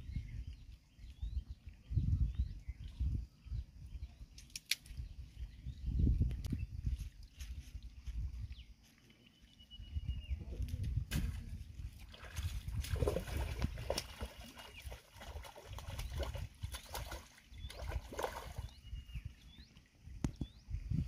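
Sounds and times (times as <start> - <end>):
sharp water slaps: 11.1 - 18.7.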